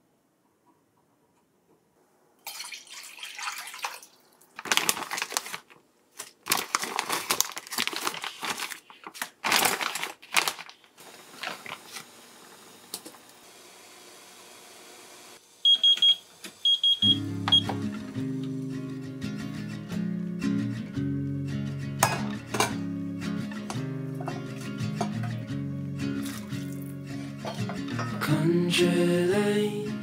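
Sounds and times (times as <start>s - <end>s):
plastic packaging crinkling: 4.5s - 12.2s.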